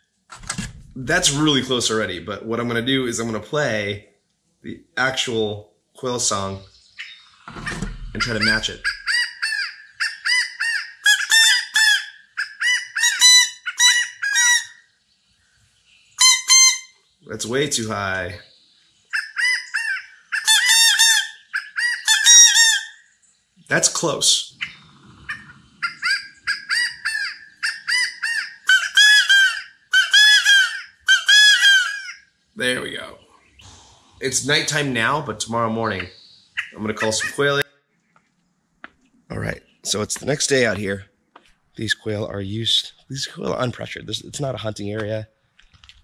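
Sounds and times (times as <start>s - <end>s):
quail call whistle: 8.1s - 14.8s, 16.2s - 17.0s, 19.2s - 23.0s, 25.8s - 32.2s.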